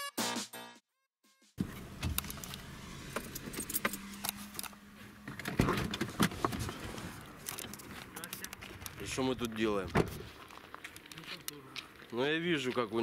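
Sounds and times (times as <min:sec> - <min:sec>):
clicking and rattling in car: 0:01.6 - 0:09.2
car running hum: 0:01.6 - 0:10.7.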